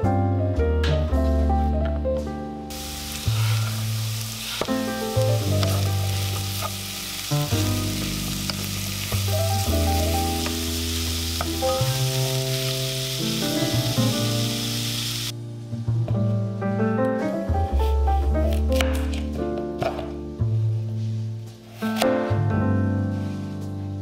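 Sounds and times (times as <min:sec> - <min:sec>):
background music of held notes: 0:00.0 - 0:24.0
vegetables sizzling in oil: 0:02.7 - 0:15.3.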